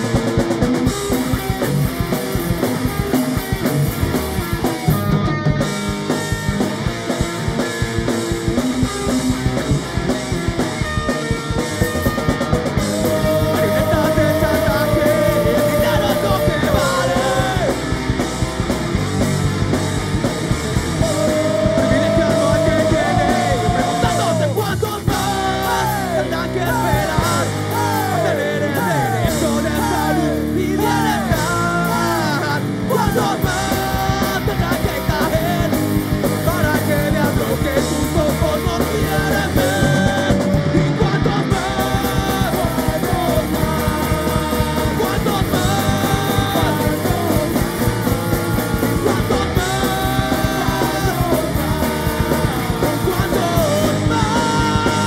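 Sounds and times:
drums: 0.0 - 55.0
electric guitar: 0.0 - 55.0
man singing: 12.8 - 18.0, 21.0 - 55.0.

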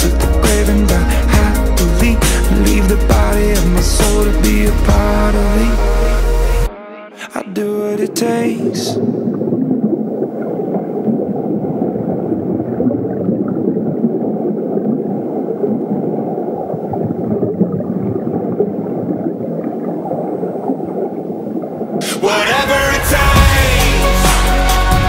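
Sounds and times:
low rumbling noise: 8.6 - 25.0.

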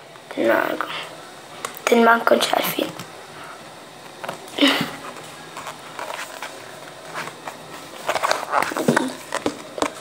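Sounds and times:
book pages rustling: 4.0 - 10.0.

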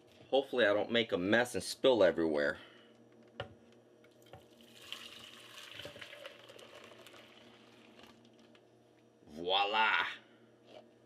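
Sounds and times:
liquid pouring and splashing: 4.2 - 8.5.

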